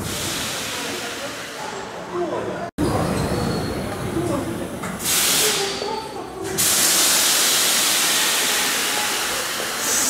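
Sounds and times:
compressed air hissing: 6.6 - 10.0.

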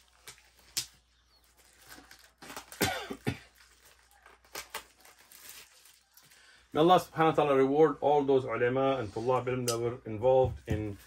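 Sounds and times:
short cough-like sound: 2.8 - 3.5
books being handled: 10.3 - 11.0.

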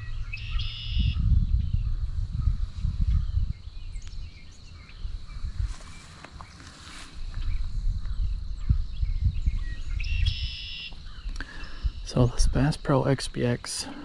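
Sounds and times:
bird singing high notes: 0.0 - 1.2, 9.5 - 12.3
gusty wind on microphone: 0.0 - 12.8
faint high insect tone: 0.0 - 14.0.

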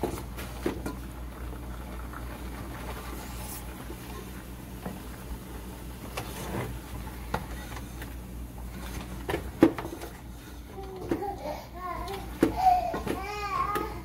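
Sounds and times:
wooden spoon scraping pot: 2.7 - 5.0, 6.0 - 11.2.

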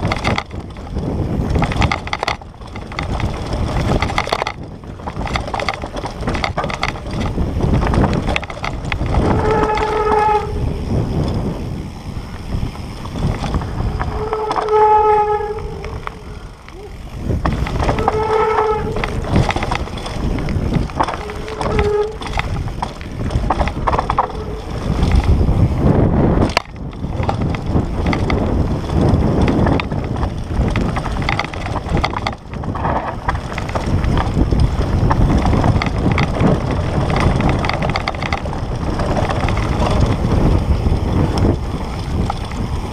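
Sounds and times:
bike rattling over rocks: 0.0 - 42.9
wind buffeting microphone: 0.0 - 42.9
short steady squeals: 14.0 - 17.0, 17.8 - 19.2.

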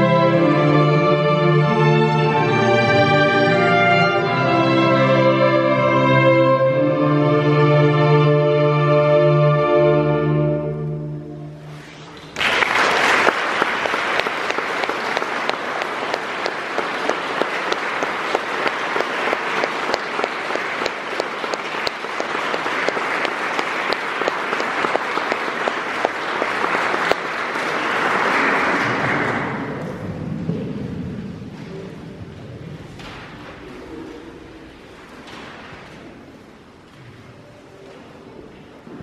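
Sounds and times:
audience applause: 12.3 - 30.0.

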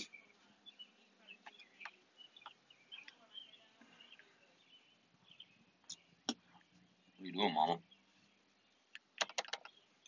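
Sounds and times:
faint bird chirping: 0.0 - 10.0
handling clicks and taps: 8.9 - 9.8.

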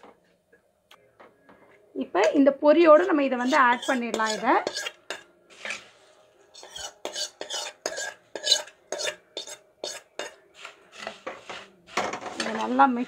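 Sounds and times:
steel spoon scraping metal pan: 3.0 - 13.0.

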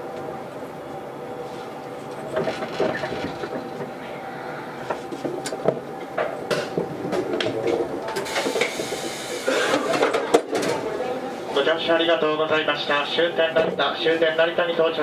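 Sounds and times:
air-conditioning fan hum: 0.0 - 15.0
train wheels clicking over rail joints: 1.9 - 10.9.

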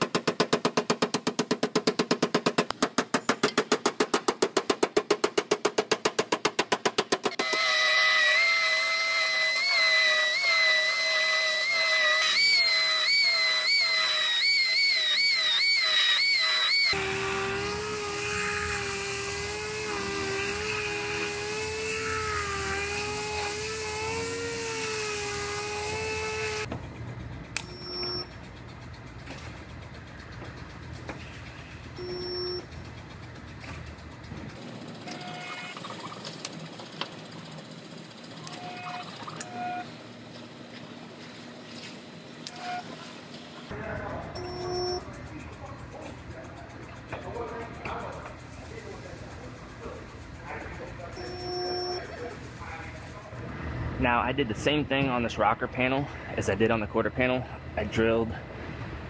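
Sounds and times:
dual-action sander whine: 7.2 - 26.8
belt sander whining on metal: 7.2 - 35.8, 43.7 - 53.2.

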